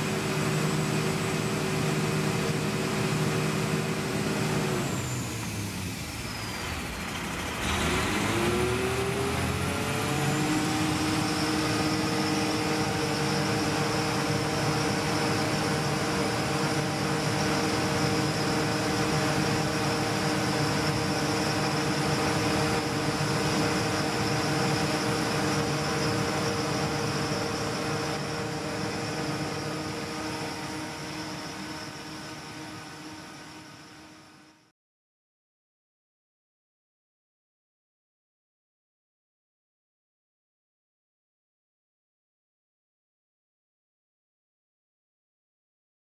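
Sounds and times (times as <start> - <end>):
pump engine humming and whining: 0.0 - 34.7.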